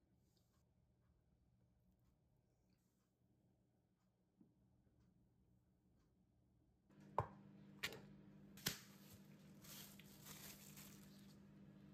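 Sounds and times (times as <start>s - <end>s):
faint room hum: 0.0s - 11.9s.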